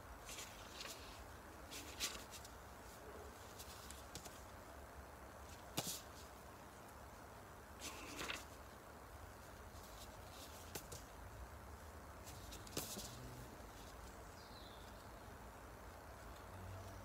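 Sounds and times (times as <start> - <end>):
book pages rustling: 0.2 - 4.5, 5.4 - 6.4, 7.8 - 8.8, 9.4 - 11.2, 12.2 - 14.2.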